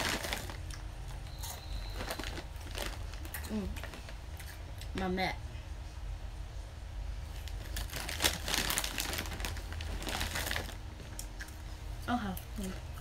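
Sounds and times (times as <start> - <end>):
foil wrapper crinkling: 0.0 - 0.8, 1.7 - 4.2, 7.4 - 10.8.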